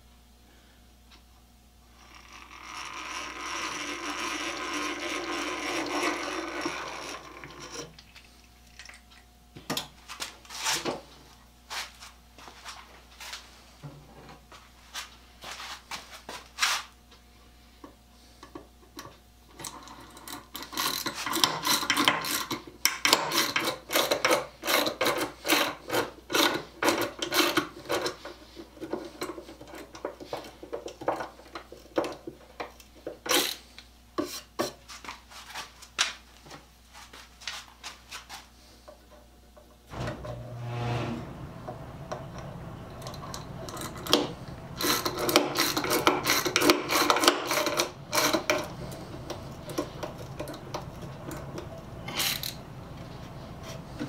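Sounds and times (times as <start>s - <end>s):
hand drill gears whirring: 2.0s - 7.9s, 43.0s - 51.4s, 52.0s - 52.6s.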